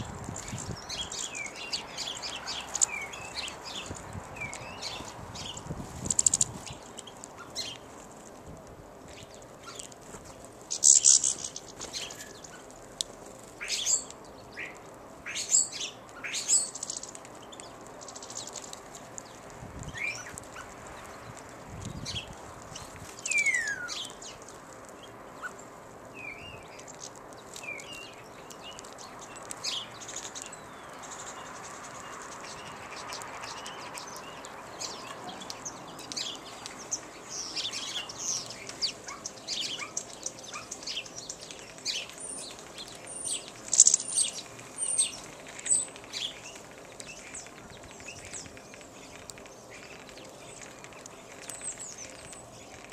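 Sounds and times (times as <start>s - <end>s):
songbirds chirping: 0.0s - 52.9s.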